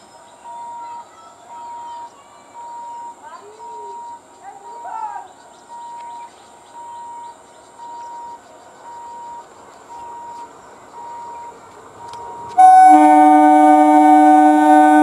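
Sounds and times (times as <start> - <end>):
faint bird chirps: 0.0 - 12.4
electric train horn: 12.6 - 15.0.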